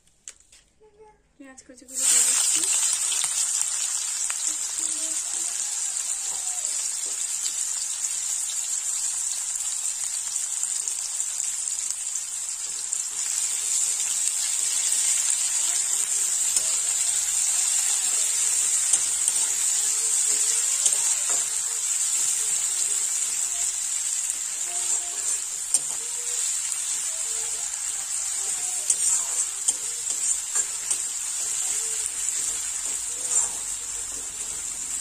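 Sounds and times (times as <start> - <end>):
onions sizzling in oil: 1.9 - 35.0
spatula stirring in metal pan: 12.6 - 35.0.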